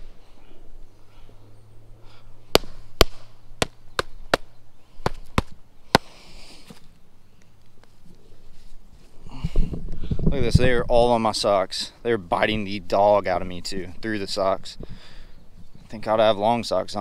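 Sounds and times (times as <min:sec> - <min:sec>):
sneakers being slapped: 0:02.6 - 0:04.5.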